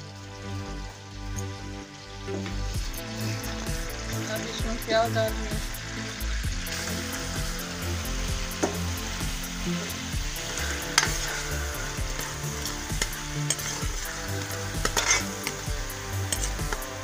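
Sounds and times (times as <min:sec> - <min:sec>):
onions sizzling in oil: 0:00.0 - 0:17.0
metal spatula scraping a pan: 0:09.7 - 0:17.0.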